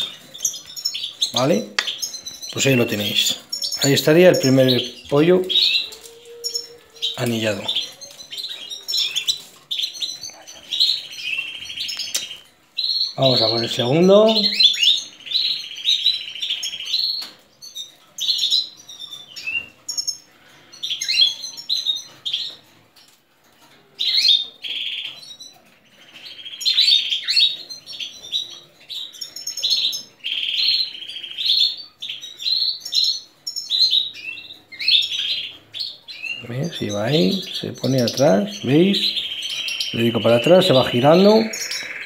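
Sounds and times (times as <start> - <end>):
faint high bird trills: 0.0 - 13.6
canaries chirping: 0.0 - 42.0.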